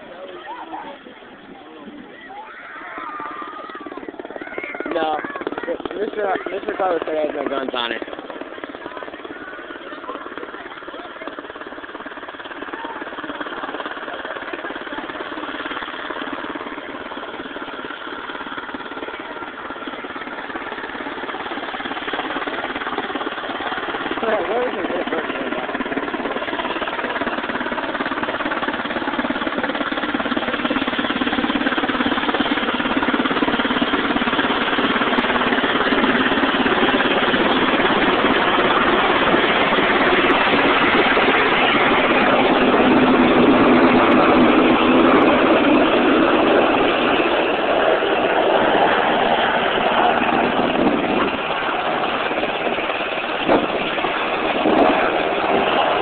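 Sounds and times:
helicopter rotors and engines: 0.0 - 56.0.

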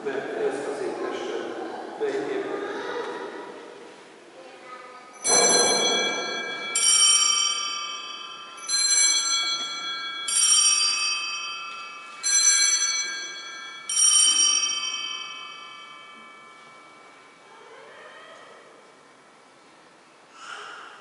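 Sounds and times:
altar bells pealing: 5.2 - 17.9.

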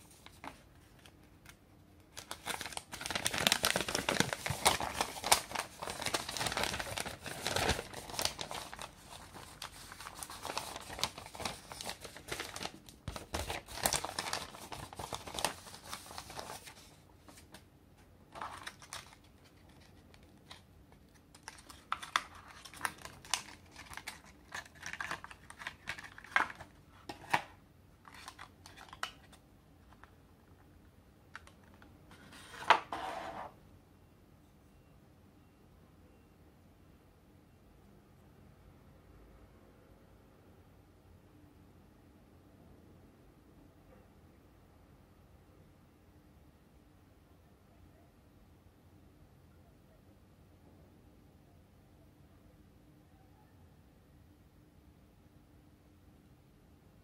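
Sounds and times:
plastic packaging crinkling: 2.1 - 17.6, 18.3 - 30.0.

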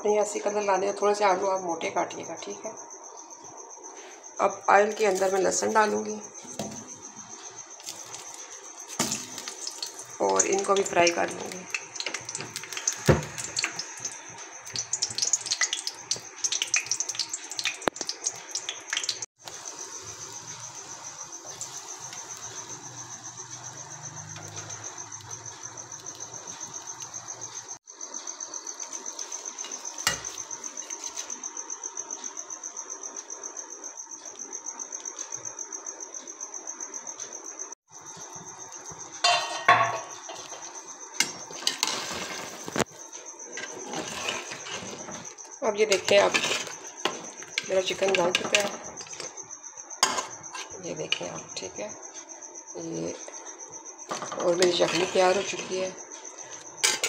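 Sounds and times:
garlic sizzling in hot oil: 5.1 - 27.8, 28.6 - 31.4, 38.1 - 49.4, 54.1 - 57.0.

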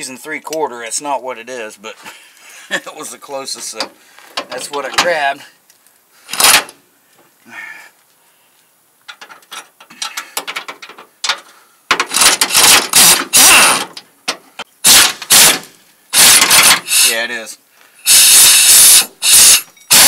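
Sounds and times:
air ratchet running: 12.1 - 13.8, 14.8 - 15.6, 16.2 - 17.2, 18.0 - 20.0.

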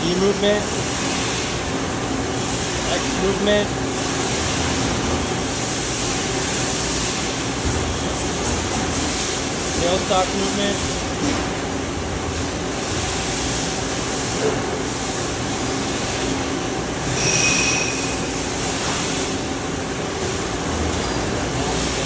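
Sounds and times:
lathe humming and hissing: 0.0 - 22.0
high-pitched whine: 17.1 - 18.3.

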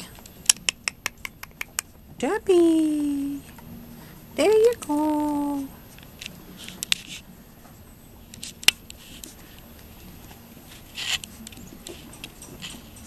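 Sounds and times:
puppy claws scratching wooden boards: 10.6 - 13.0.

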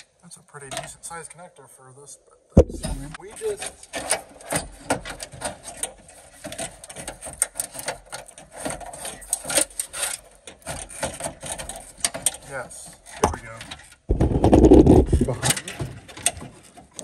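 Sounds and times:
scraping and rubbing on sheet metal: 14.1 - 15.5.

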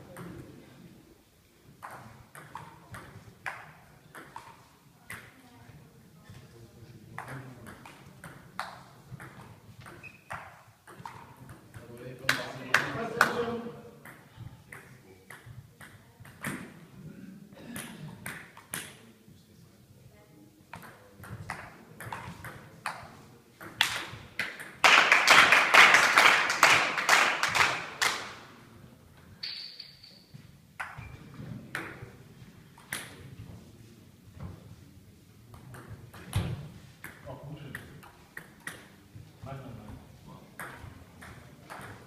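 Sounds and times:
brief high squeak: 10.0 - 10.4.

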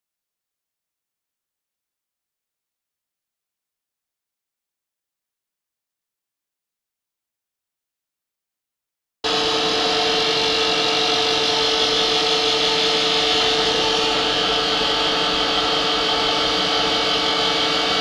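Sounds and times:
pillar drill machining steel: 9.3 - 18.0.

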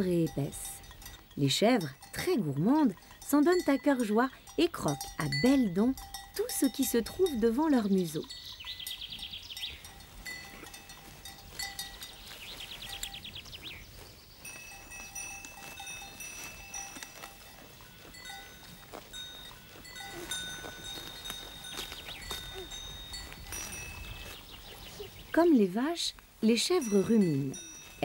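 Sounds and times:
small bells clinking: 0.0 - 25.0, 26.6 - 28.0
goats tearing and chewing grass: 0.0 - 28.0.

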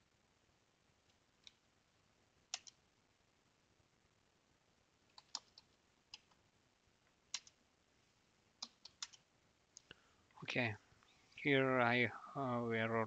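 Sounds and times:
computer keyboard keystrokes: 2.5 - 2.8, 5.1 - 6.4, 7.3 - 7.6, 8.6 - 9.2.

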